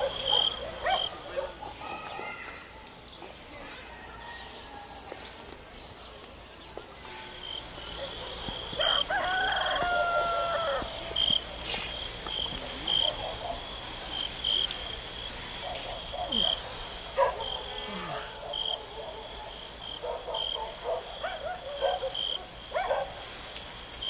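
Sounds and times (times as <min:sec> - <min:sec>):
rooster crowing: 0:07.4 - 0:22.8.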